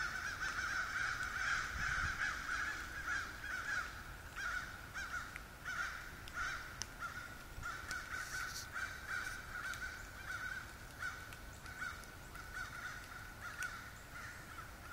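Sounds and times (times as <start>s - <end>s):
crows cawing: 0.0s - 14.9s.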